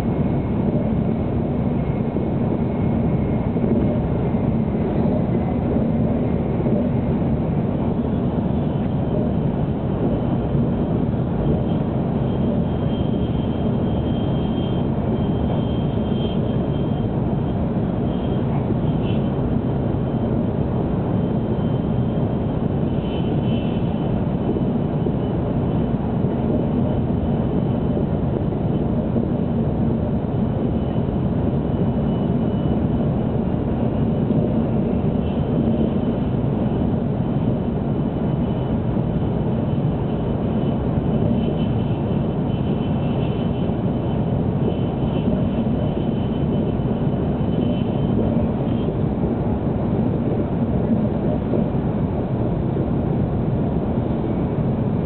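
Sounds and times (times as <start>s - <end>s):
train running gear rumble: 0.0s - 14.1s.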